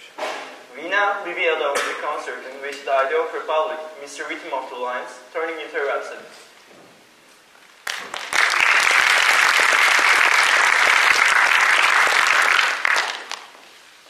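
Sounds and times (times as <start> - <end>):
audience clapping: 7.8 - 13.6.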